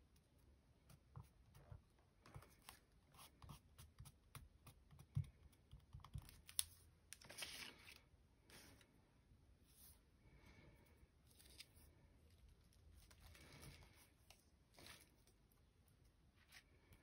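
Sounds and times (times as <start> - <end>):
paper rustling: 6.4 - 8.9.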